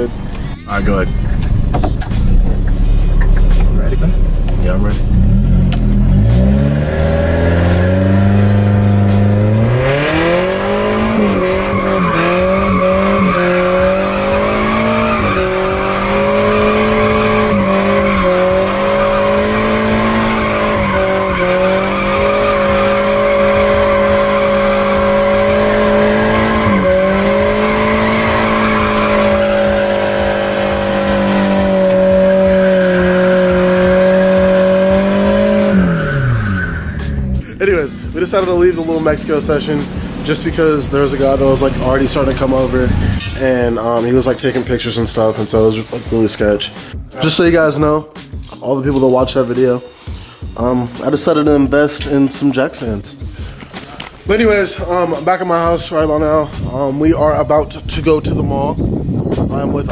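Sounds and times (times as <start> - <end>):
car engine revving high: 1.4 - 43.9
tyres squealing: 6.0 - 44.2.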